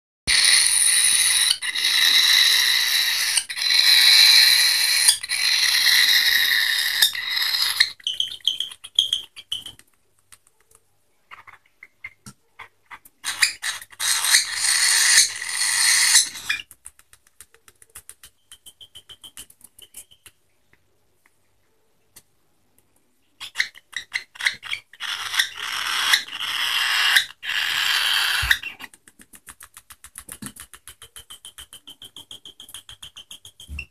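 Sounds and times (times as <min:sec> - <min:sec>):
small ticks: 0:16.6 - 0:20.4, 0:28.4 - 0:33.8.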